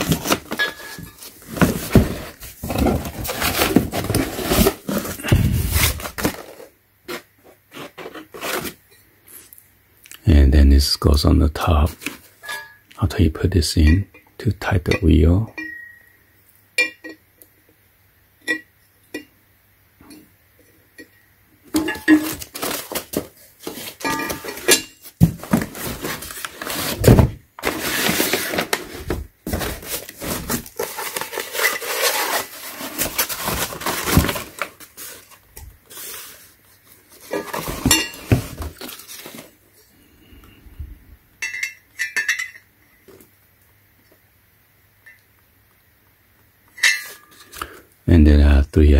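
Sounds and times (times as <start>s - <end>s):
packing paper rustling: 0.0s - 6.7s, 22.2s - 39.6s.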